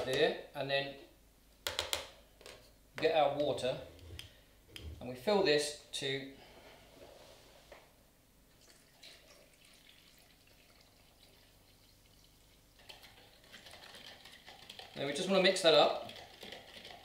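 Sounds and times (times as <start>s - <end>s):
water trickling into plastic jug: 8.6s - 17.0s.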